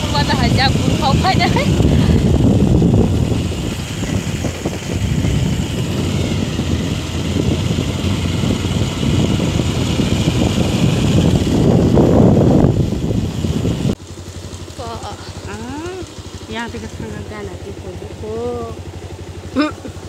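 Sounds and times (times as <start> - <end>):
wind rumble on microphone: 0.0 - 14.0
motorcycle engine running: 0.0 - 20.0.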